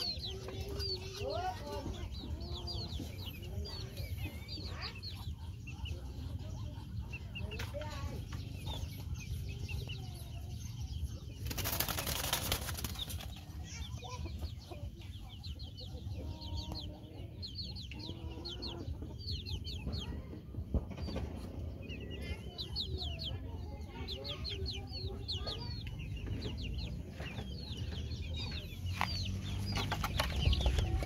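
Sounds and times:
hen clucks: 0:00.0 - 0:09.6
high-pitched chick peeps: 0:00.0 - 0:31.0
wing flapping: 0:11.4 - 0:13.5.

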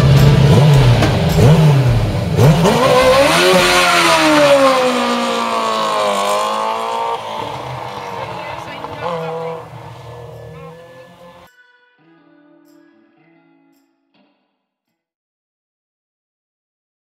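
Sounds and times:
racing engine accelerating: 0:00.0 - 0:11.5.

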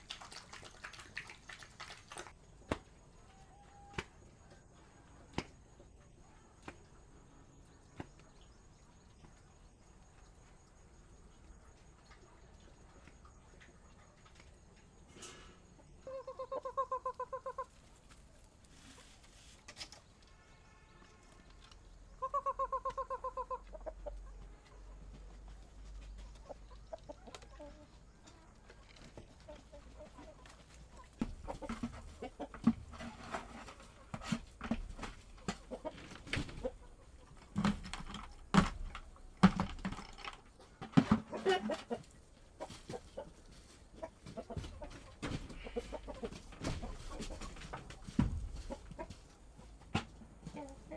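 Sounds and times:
chickens calling: 0:15.7 - 0:20.1, 0:21.7 - 0:50.9
sharp knocks and rustling: 0:30.6 - 0:41.9, 0:42.6 - 0:50.5.

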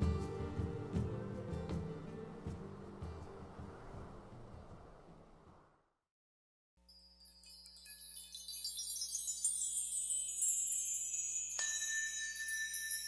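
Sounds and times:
tinkling wind chimes: 0:06.8 - 0:13.0.

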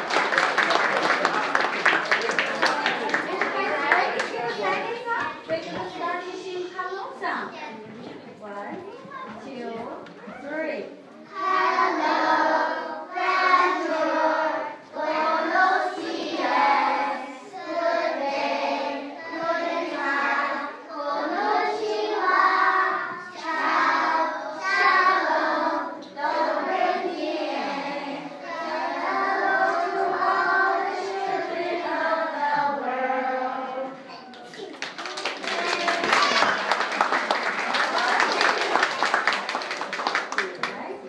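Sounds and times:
children singing in unison: 0:11.2 - 0:34.2.

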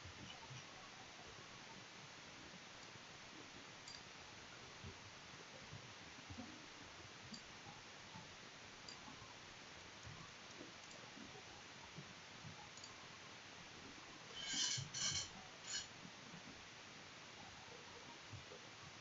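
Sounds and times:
steady hiss: 0:13.9 - 0:16.0.

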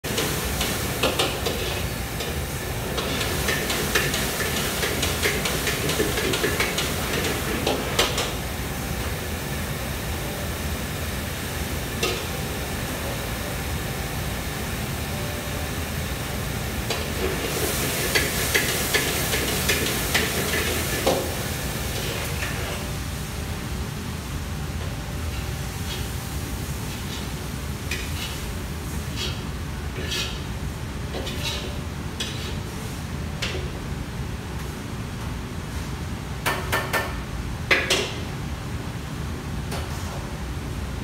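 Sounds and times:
food sizzling in a wok: 0:00.1 - 0:24.3, 0:25.3 - 0:33.1.

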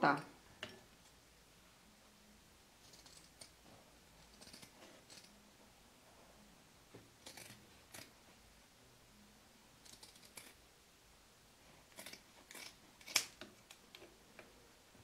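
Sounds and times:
scissors snipping fabric: 0:02.8 - 0:03.6, 0:04.2 - 0:05.4, 0:07.2 - 0:08.1, 0:09.8 - 0:10.6, 0:11.9 - 0:13.4.

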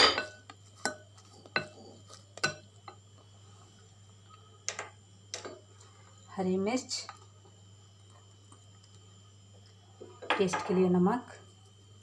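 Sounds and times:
spoon clinking glass bowl: 0:00.0 - 0:03.0.

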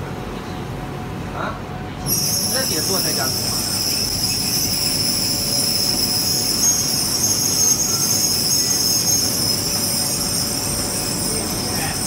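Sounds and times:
laser cutter high-pitched whine: 0:05.6 - 0:12.0.

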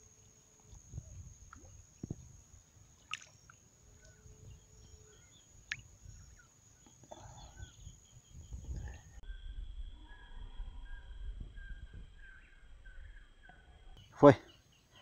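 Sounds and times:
river water lapping and dripping: 0:00.0 - 0:04.2, 0:05.6 - 0:07.0.

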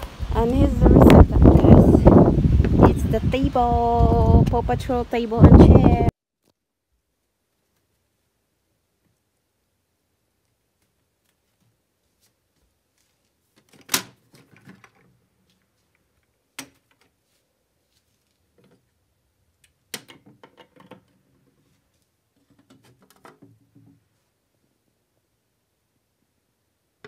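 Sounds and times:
table rattling: 0:20.0 - 0:21.5.

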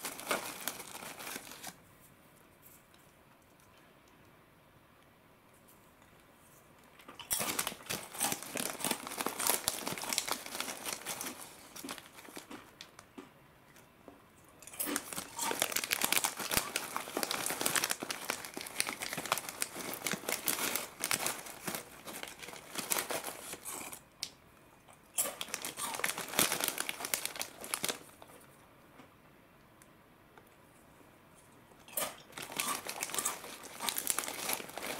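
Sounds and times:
snack bag crinkling: 0:00.0 - 0:01.8, 0:07.0 - 0:13.2, 0:14.6 - 0:24.0, 0:25.2 - 0:28.5, 0:32.0 - 0:34.9.

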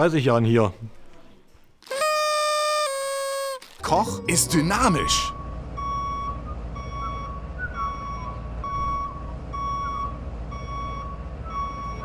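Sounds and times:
forklift warning beeper: 0:03.8 - 0:12.0.

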